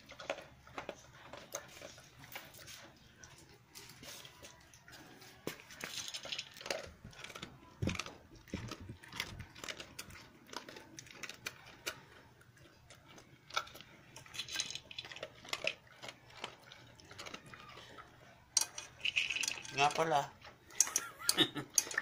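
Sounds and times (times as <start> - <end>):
dog crunching kibble: 0.0 - 22.0
pellets clinking against metal: 5.7 - 8.1, 14.3 - 15.7, 18.6 - 21.0.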